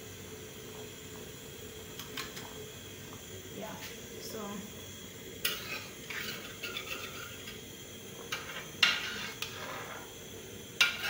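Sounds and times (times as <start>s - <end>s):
metal spoon stirring in pot: 5.4s - 7.6s, 8.3s - 10.1s, 10.8s - 11.0s.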